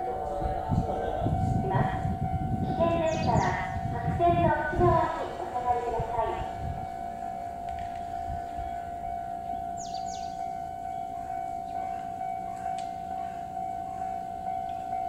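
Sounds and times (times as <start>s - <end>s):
high electronic alarm tone: 0.0s - 15.0s.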